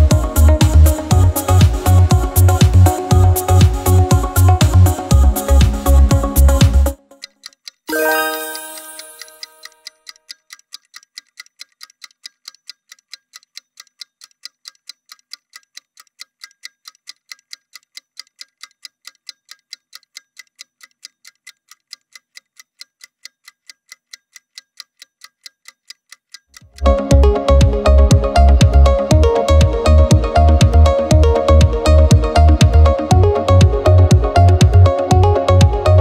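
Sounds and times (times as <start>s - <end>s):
music with a beat: 0.0s - 7.2s, 26.7s - 36.0s
clock ticking: 0.0s - 36.0s
musical chime: 7.9s - 9.8s.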